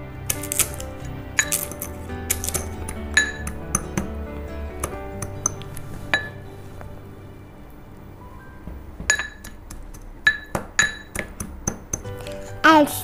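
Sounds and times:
chips being crushed: 0.2s - 3.1s
spoon clinking against glass bowl: 10.2s - 12.1s.

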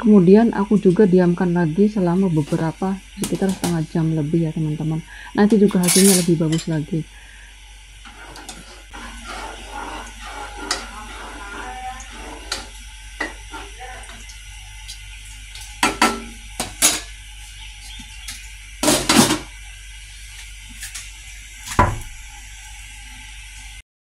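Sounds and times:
kitchen utensils clattering: 5.5s - 6.8s, 8.3s - 14.3s, 15.6s - 17.2s, 18.8s - 19.5s.

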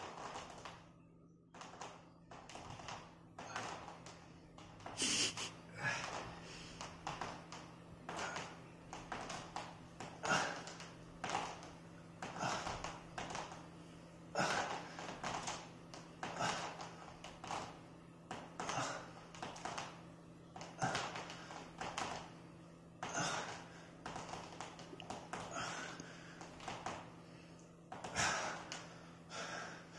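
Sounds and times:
push-up bars tapping on floor: 1.5s - 5.0s, 5.9s - 13.7s, 14.4s - 20.0s, 20.6s - 22.3s, 23.0s - 27.1s
man breathing hard: 25.4s - 26.6s, 27.2s - 29.9s.

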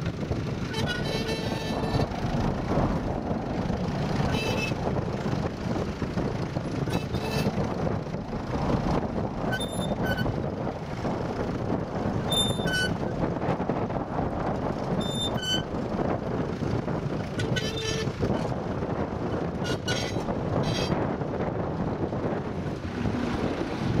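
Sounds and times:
tractor diesel engine running: 0.0s - 24.0s
short high squeaks: 9.5s - 10.3s, 12.3s - 13.0s, 15.0s - 15.7s.

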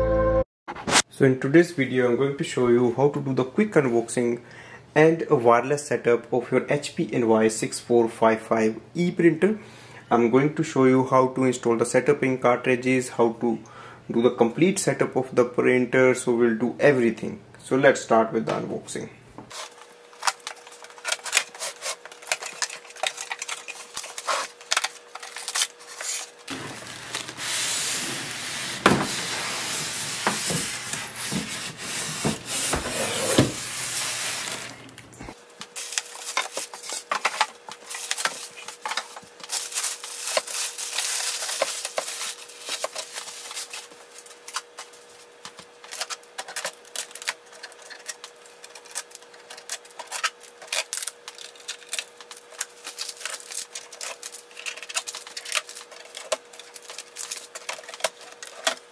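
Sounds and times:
plastic wrap crinkling: 19.5s - 35.0s, 35.6s - 58.9s.

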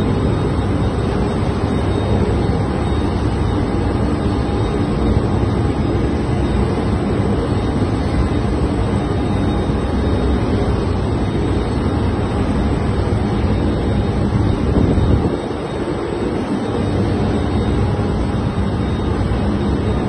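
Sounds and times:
low rumble of ship engines: 0.0s - 20.0s
wind buffeting microphone: 14.6s - 16.1s.

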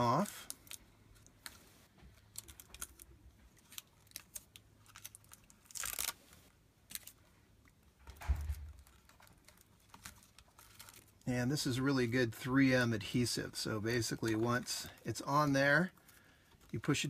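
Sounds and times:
tape peeling: 0.0s - 7.3s, 8.0s - 11.2s
plastic backing clicks and crinkles: 7.9s - 11.2s
low thump: 8.2s - 8.8s.

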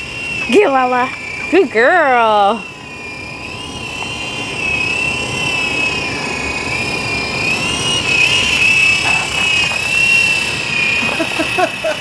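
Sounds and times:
rotor blades whirring: 0.0s - 12.0s
toy helicopter motor whining: 0.0s - 12.0s.

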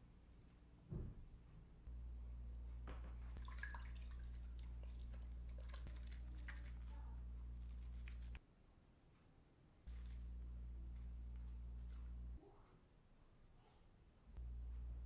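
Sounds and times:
steady low hum: 0.0s - 8.4s, 9.7s - 12.9s, 14.2s - 15.0s
water drips and splashes: 3.4s - 6.9s
squishy soap lathering: 3.4s - 8.4s.

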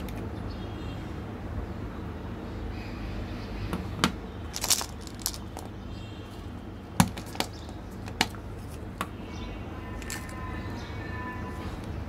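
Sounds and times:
candies and plastic ball clicking: 4.5s - 5.7s.

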